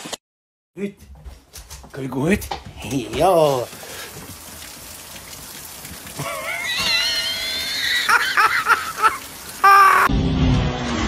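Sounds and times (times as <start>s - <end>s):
rain pattering: 1.5s - 10.1s.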